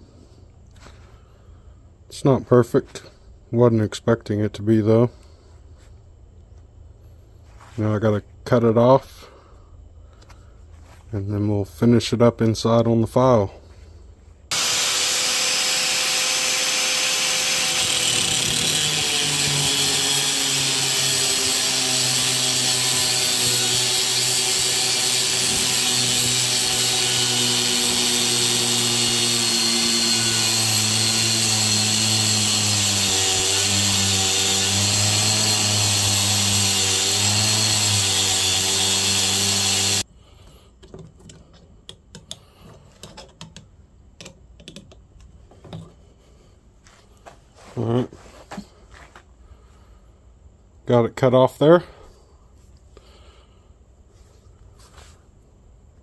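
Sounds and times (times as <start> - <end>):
angle grinder cutting steel: 14.5 - 40.0.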